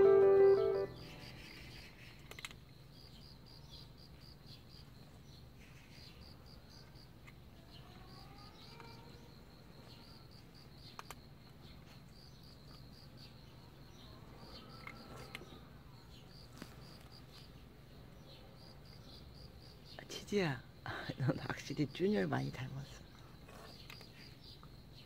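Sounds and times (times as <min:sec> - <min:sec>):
insect chirping: 0:00.0 - 0:25.0.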